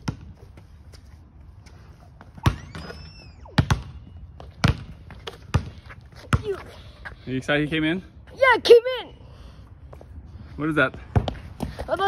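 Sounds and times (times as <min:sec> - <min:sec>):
basketball bouncing on concrete: 0:00.0 - 0:00.7, 0:02.2 - 0:06.7, 0:10.9 - 0:12.0.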